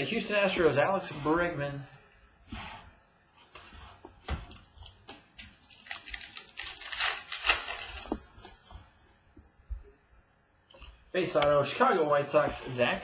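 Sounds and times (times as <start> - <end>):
cards rustling against each other: 4.8 - 8.8.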